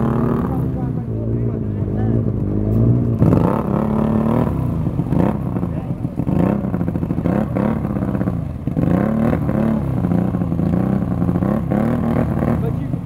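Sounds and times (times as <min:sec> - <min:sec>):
atv engine revving: 0:00.0 - 0:13.0.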